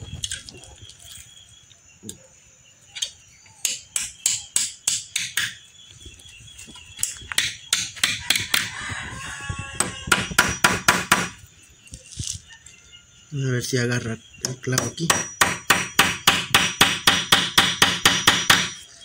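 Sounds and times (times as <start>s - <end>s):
hammer striking nails into wood: 3.6s - 5.6s, 7.4s - 8.7s, 9.8s - 11.4s, 14.4s - 18.8s.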